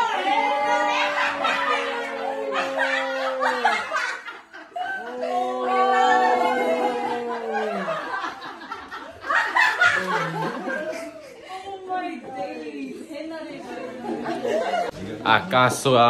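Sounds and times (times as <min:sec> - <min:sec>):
people calling out drawn-out: 0:00.0 - 0:04.0, 0:04.9 - 0:08.1
people laughing: 0:00.0 - 0:15.3
people chattering: 0:00.0 - 0:16.0.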